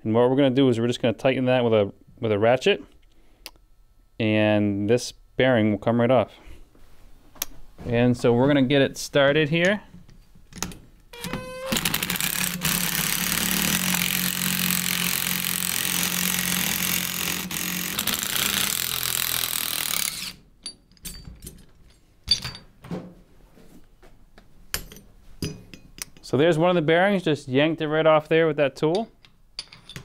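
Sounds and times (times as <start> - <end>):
power ratchet running: 11.2 - 20.4.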